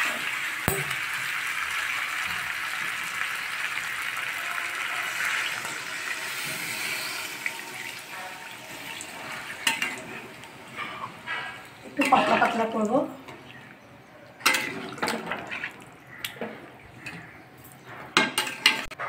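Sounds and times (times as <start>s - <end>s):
water pouring into a pan: 0.0s - 10.6s
sharp knock: 0.7s - 1.0s.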